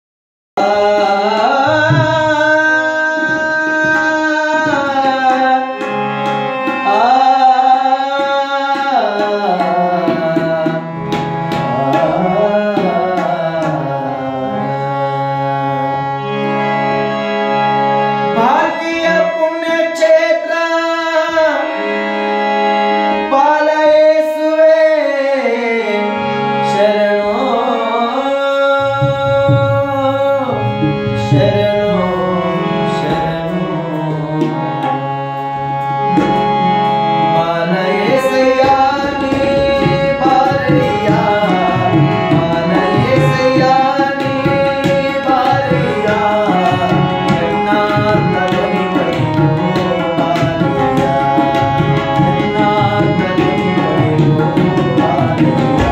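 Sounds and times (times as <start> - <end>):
tabla drums: 0.6 - 14.0, 28.6 - 35.0, 36.1 - 55.9
man singing: 0.6 - 16.4, 18.2 - 22.4, 23.0 - 55.9
harmonium: 0.6 - 55.9.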